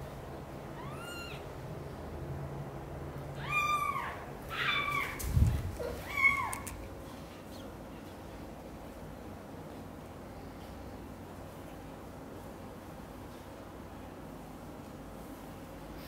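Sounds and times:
kitten meowing loudly: 0.8 - 1.4, 3.4 - 5.2.

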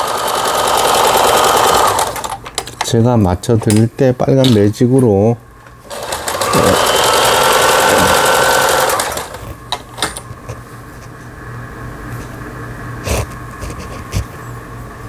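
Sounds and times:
sewing machine stitching: 0.0 - 2.4, 5.8 - 9.5.

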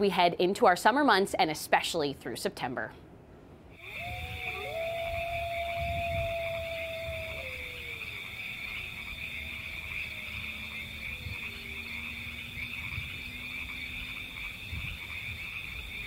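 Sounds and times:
frogs trilling: 3.8 - 16.0.

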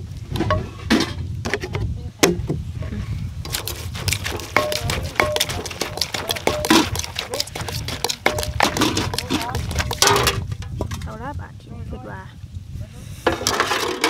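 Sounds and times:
wooden pestle pounding in clay mortar: 3.5 - 11.0.

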